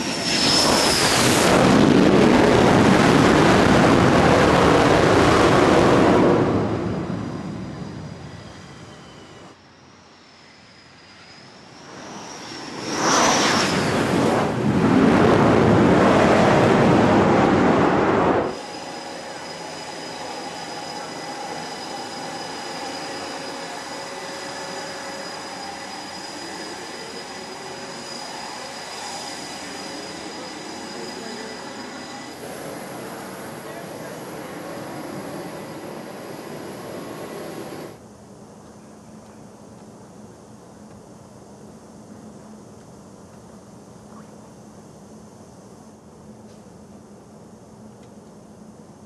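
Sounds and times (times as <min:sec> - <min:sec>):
loud jet noise: 0:00.0 - 0:38.0
jet engines whining: 0:00.0 - 0:42.6
flight deck engine noise: 0:00.0 - 0:49.0.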